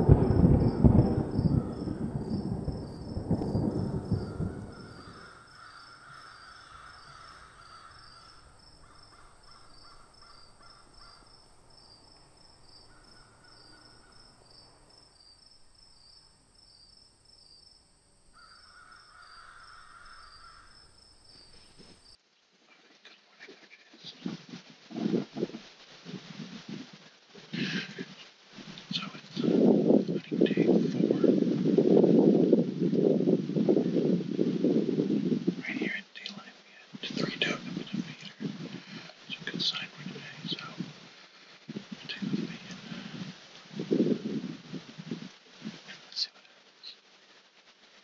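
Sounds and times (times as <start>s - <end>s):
deep rumble: 0.0s - 5.5s
quiet outdoor ambience: 0.0s - 48.0s
crows cawing faintly: 0.6s - 17.7s, 18.3s - 22.2s.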